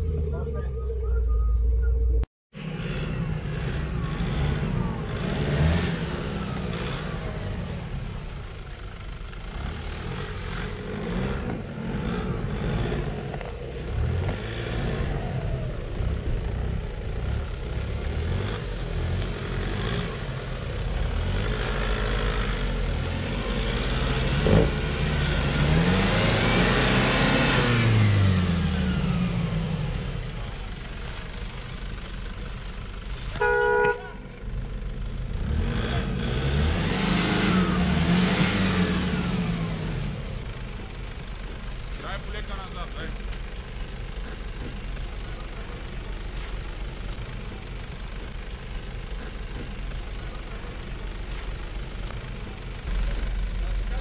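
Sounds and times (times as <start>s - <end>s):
short beep: 0.0s - 2.3s
diesel engine revving under load: 0.0s - 8.7s, 9.4s - 54.0s.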